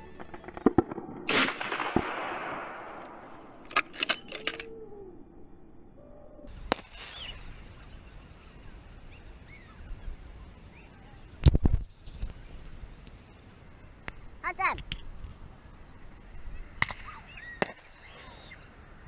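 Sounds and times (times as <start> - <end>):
fireworks bangs: 0.0 - 3.7, 6.5 - 7.6, 16.7 - 18.2
fireworks hiss: 6.5 - 10.4.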